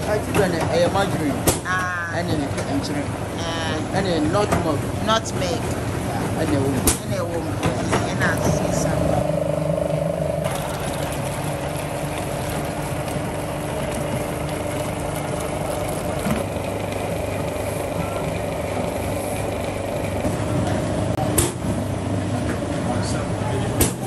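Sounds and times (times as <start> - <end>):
machine humming: 0.0 - 23.8.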